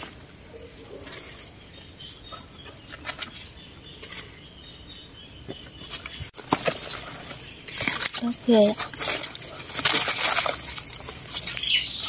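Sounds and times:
leaves rustling and stems snapping: 5.8 - 12.0
faint bird chirps: 11.5 - 12.0.

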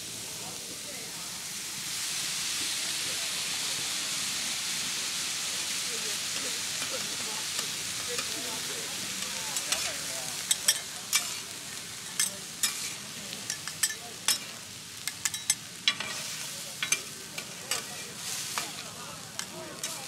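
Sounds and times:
corn sizzling on metal griddle: 0.0 - 20.0
metal spatulas scraping and clacking: 9.6 - 11.4, 12.1 - 14.5, 15.1 - 18.8.

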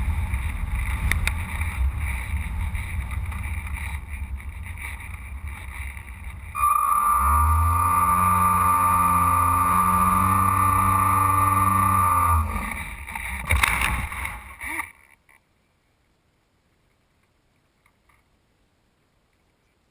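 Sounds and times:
airflow rushing over microphone: 0.0 - 14.6
electric motor whine: 6.5 - 13.3.

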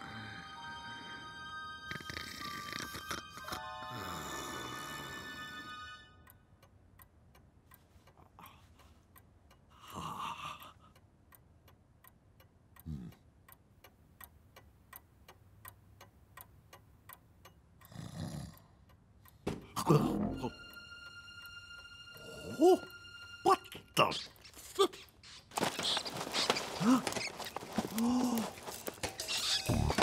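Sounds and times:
person snoring: 1.9 - 5.6, 17.9 - 18.6
clock ticking: 6.2 - 30.0.

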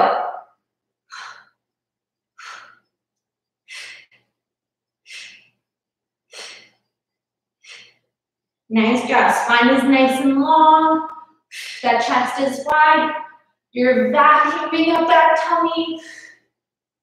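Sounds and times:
woman's forceful breaths: 1.0 - 3.0, 3.6 - 8.2, 11.4 - 12.1.

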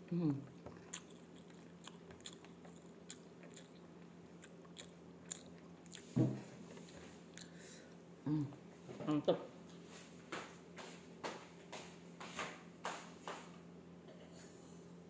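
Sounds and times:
person chewing food: 0.3 - 7.8
person humming briefly: 8.2 - 8.6.

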